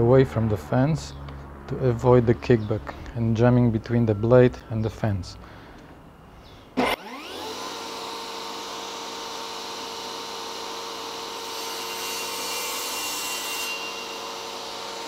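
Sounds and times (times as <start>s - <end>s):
saw blade cutting wood: 6.8s - 15.0s
table saw motor whine: 6.8s - 15.0s.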